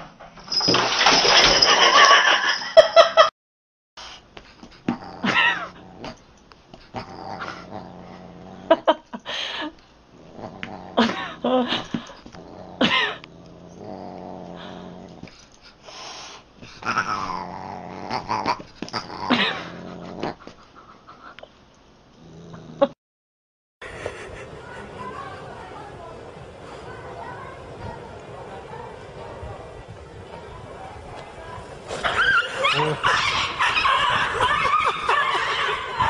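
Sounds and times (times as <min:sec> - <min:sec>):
animals growling: 0:04.8 - 0:06.2, 0:06.9 - 0:09.0, 0:10.1 - 0:15.4, 0:16.6 - 0:20.6, 0:22.2 - 0:23.0, 0:23.8 - 0:36.0.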